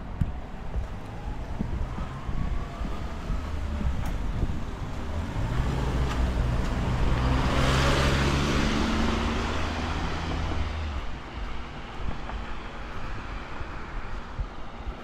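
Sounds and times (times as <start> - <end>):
vehicle passing by: 1.4 - 11.2.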